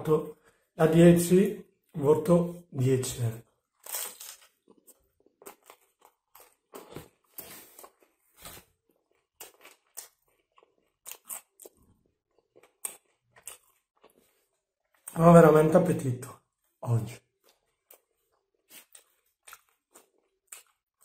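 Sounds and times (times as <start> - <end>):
person chewing crunchy food: 3.5 - 15.2, 17.3 - 21.0.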